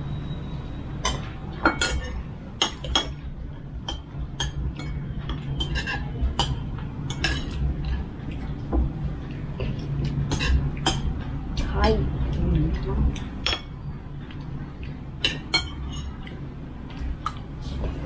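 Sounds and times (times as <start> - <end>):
steady low hum: 0.0 - 18.0
cutlery clinking against dishes: 1.0 - 8.6, 9.6 - 11.2, 13.2 - 13.8, 14.8 - 17.4.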